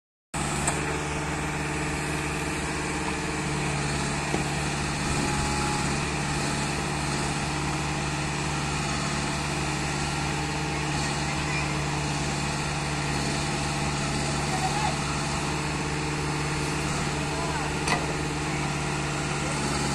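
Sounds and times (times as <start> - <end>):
diesel engine running steadily: 0.3 - 19.9.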